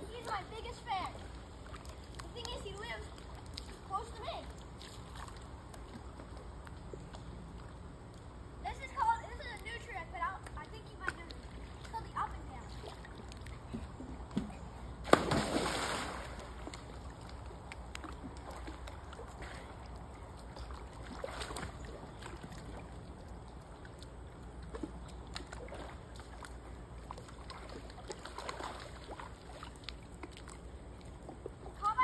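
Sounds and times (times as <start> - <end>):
water sloshing and lapping: 0.0 - 32.0
loud splash into pool: 15.0 - 16.6.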